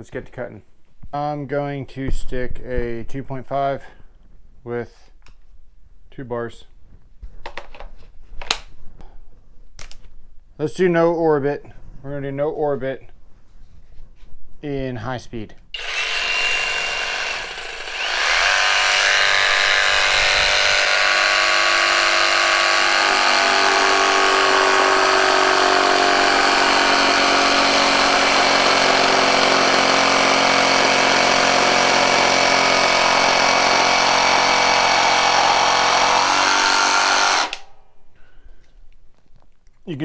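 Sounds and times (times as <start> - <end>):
jigsaw cutting wood: 15.8 - 37.6.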